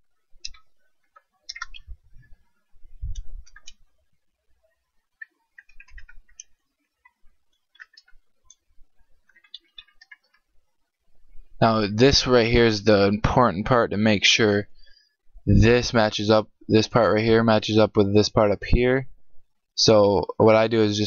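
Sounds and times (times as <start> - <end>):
keyboard typing clicks: 5.2 - 8.6.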